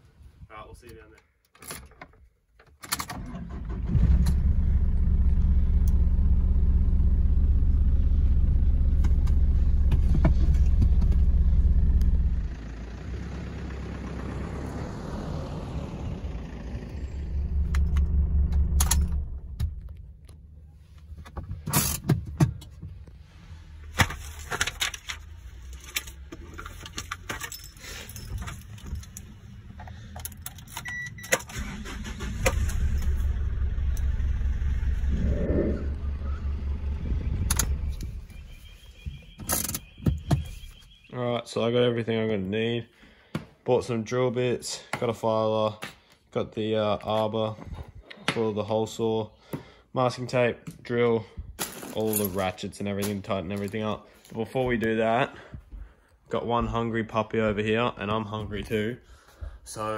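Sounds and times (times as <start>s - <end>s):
engine starting and running: 2.8s - 38.6s
keys jangling: 26.8s - 29.4s.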